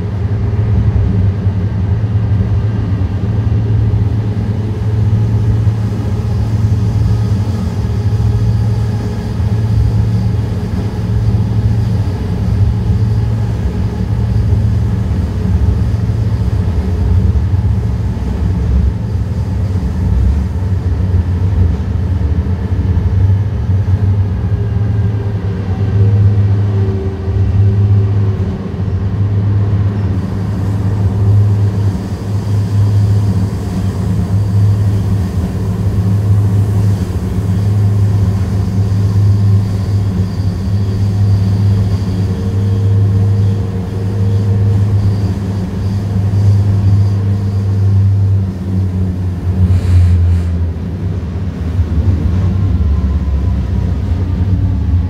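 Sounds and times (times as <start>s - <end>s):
faint steady whine: 0.0s - 55.0s
low hum: 0.0s - 55.0s
train wheels rumbling on rails: 0.0s - 55.0s.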